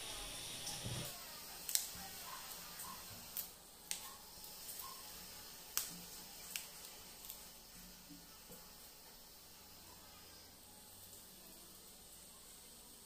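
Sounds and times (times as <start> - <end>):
chillies snapping: 1.6 - 2.0, 3.2 - 4.1, 5.7 - 7.5.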